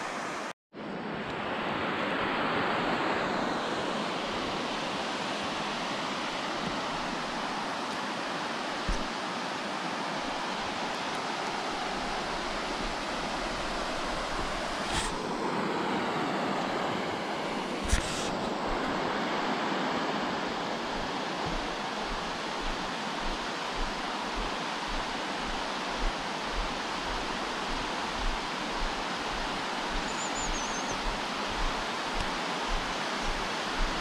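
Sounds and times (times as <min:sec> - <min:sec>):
water rushing down spillway: 0:17.6 - 0:34.0.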